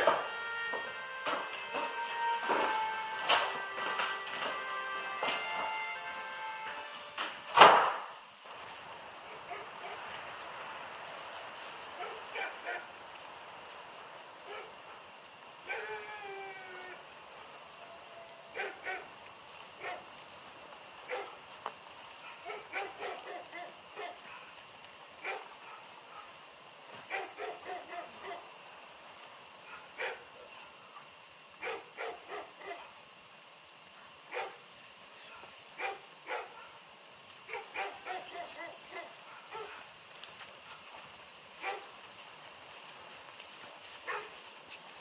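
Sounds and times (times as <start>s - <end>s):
faint steady hiss: 0.0s - 45.0s
dog barking: 9.3s - 10.1s, 12.0s - 12.9s, 14.4s - 14.8s, 15.7s - 16.0s, 18.5s - 19.1s, 19.8s - 20.1s, 21.1s - 21.4s, 22.2s - 24.6s, 25.2s - 26.4s, 27.0s - 28.5s, 29.6s - 31.0s, 31.6s - 33.0s, 34.0s - 34.6s, 35.2s - 36.8s, 37.5s - 39.9s, 41.6s - 41.9s, 44.0s - 44.4s.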